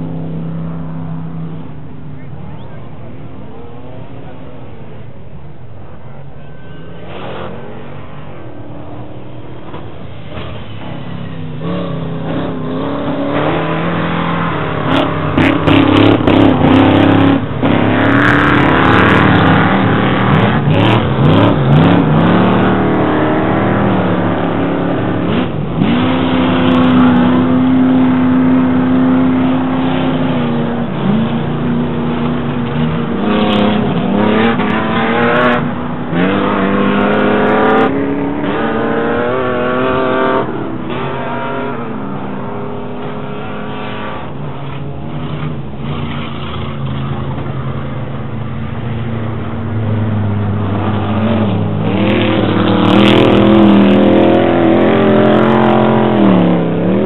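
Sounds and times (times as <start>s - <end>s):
truck engines revving: 0.0s - 57.0s.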